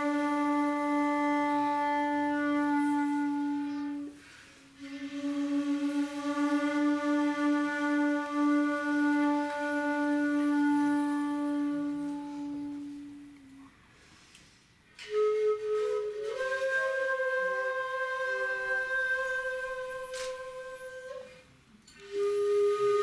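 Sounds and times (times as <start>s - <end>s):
bamboo flutes playing slowly: 0.0s - 14.3s, 14.9s - 23.0s.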